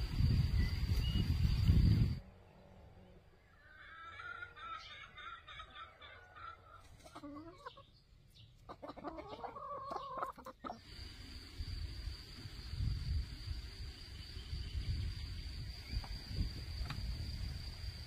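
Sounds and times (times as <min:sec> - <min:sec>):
chickens clucking: 0:03.7 - 0:11.0.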